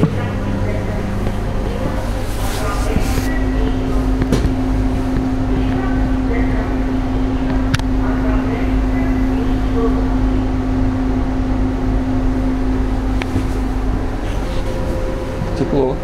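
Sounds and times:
electric train equipment hum: 0:00.0 - 0:16.0
steady mid-pitched tone: 0:00.0 - 0:16.0.

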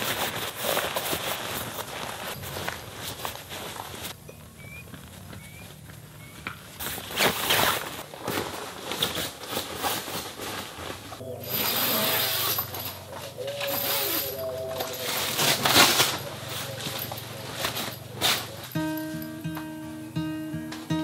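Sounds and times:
canvas flap rustling and flapping: 0:00.0 - 0:04.2, 0:06.7 - 0:13.2, 0:13.8 - 0:18.9.

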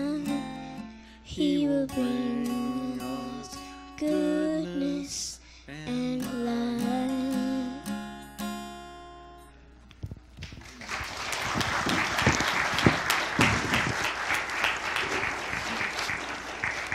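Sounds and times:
acoustic guitar chord ringing: 0:01.9 - 0:09.8
congregation clapping: 0:10.4 - 0:16.9.

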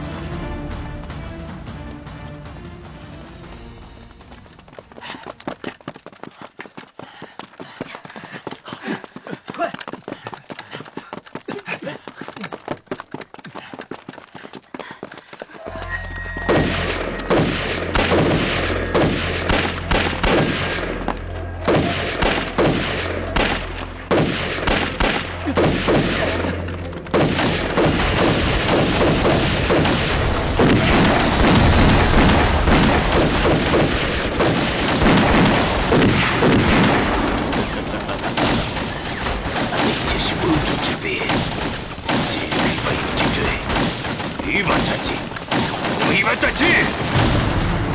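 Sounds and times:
rifle and machine-gun fire: 0:16.5 - 0:21.0, 0:21.6 - 0:47.9
booms: 0:27.1 - 0:47.9.

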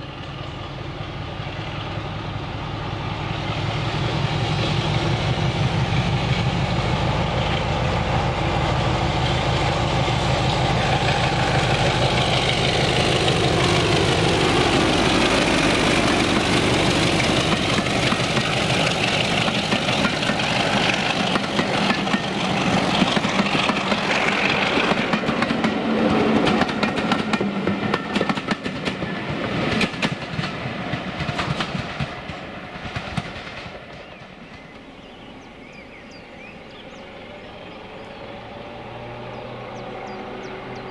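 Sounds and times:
diesel locomotive engine: 0:00.0 - 0:40.9
coaches clattering over rail joints: 0:09.2 - 0:34.7.

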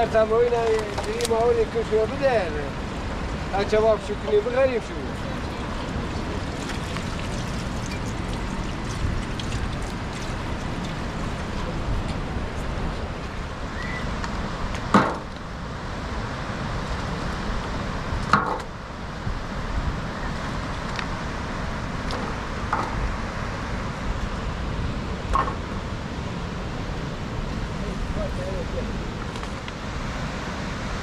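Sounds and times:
river rushing: 0:00.0 - 0:31.0
sharp knocks: 0:14.9 - 0:15.3, 0:18.3 - 0:18.7.

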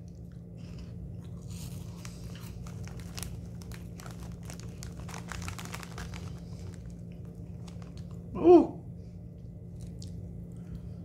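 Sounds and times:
plastic snack bag crinkling: 0:01.3 - 0:08.3.

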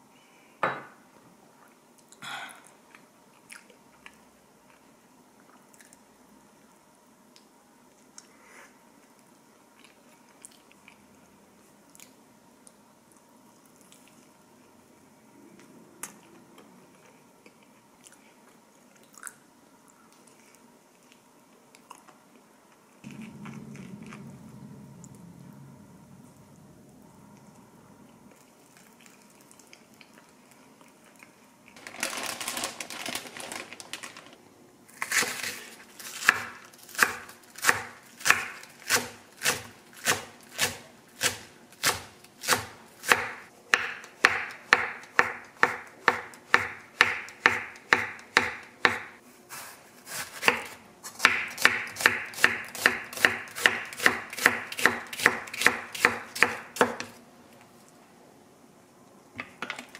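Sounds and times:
knife chopping on wooden board: 0:36.2 - 0:49.1, 0:50.1 - 0:57.1.

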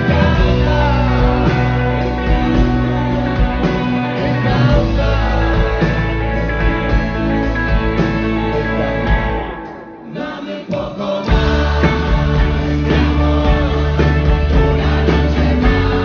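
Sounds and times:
person singing: 0:00.0 - 0:07.1, 0:07.7 - 0:16.0
live rock band playing: 0:00.0 - 0:10.1, 0:11.3 - 0:16.0
electric guitar: 0:00.0 - 0:16.0.

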